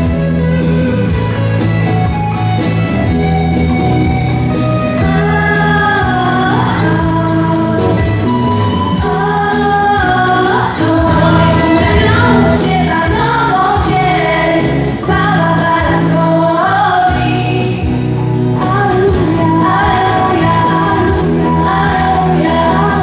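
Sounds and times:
instrumental accompaniment: 0:00.0 - 0:23.0
voices singing together: 0:05.0 - 0:18.0, 0:18.6 - 0:23.0.

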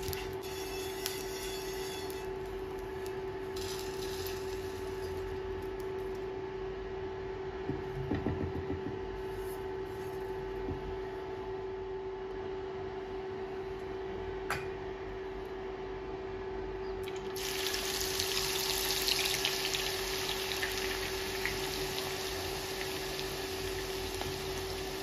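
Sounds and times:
induction cooktop humming: 0:00.0 - 0:25.0
pan knocking on glass top: 0:07.7 - 0:09.0
spatula knocking in pan: 0:07.7 - 0:09.1.

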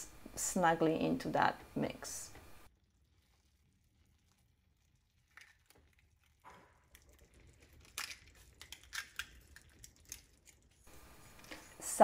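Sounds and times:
eggshells cracking: 0:03.0 - 0:10.8.

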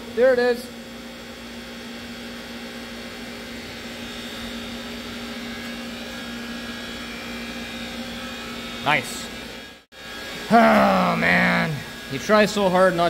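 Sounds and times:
machinery hum: 0:03.7 - 0:13.0.

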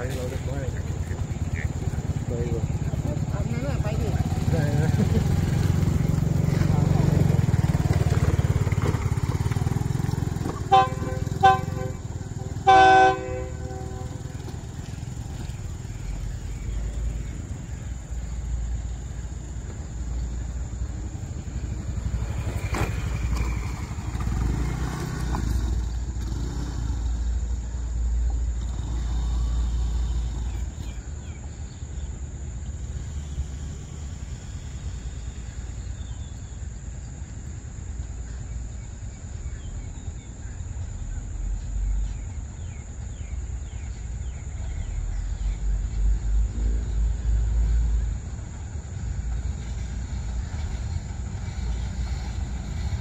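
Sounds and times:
diesel engine rumble: 0:00.0 - 0:53.0
train horn toots and blast: 0:10.6 - 0:14.6.

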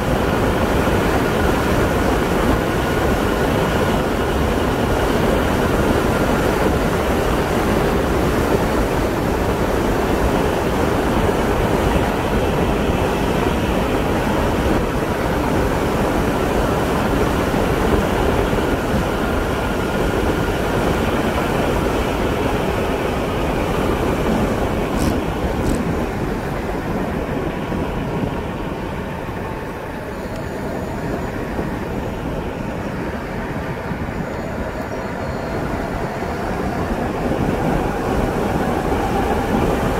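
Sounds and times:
wind rush: 0:00.0 - 0:39.9
tyre noise on asphalt: 0:23.6 - 0:27.4.

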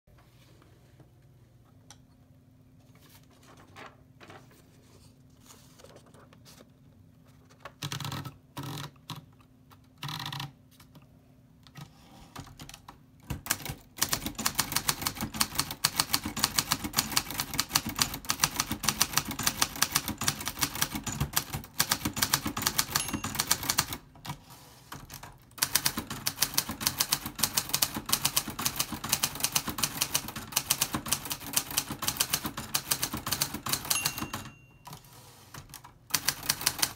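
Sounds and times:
fast typewriter typing: 0:07.7 - 0:09.3, 0:10.0 - 0:10.6, 0:11.8 - 0:36.9
typewriter handling noise: 0:25.0 - 0:36.9.

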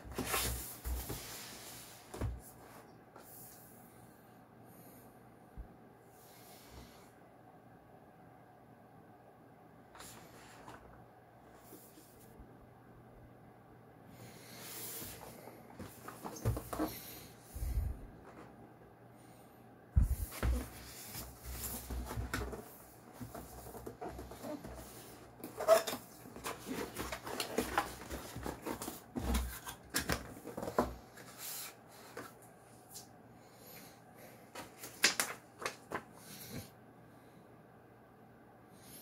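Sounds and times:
paper manual handled: 0:23.2 - 0:30.8.

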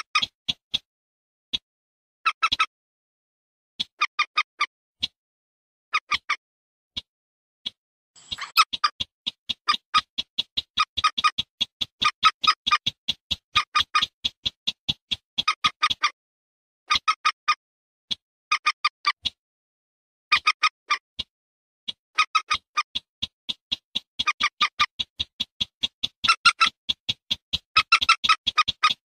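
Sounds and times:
rail calls: 0:20.3 - 0:21.0, 0:22.2 - 0:23.1, 0:24.0 - 0:29.0.

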